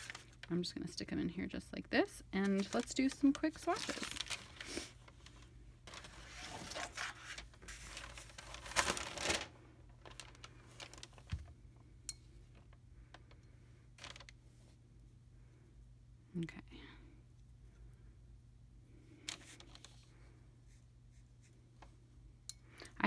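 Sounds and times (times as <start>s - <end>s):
paper rustling and crinkling: 0.0s - 0.5s, 2.4s - 11.6s, 14.0s - 14.3s, 19.2s - 20.2s.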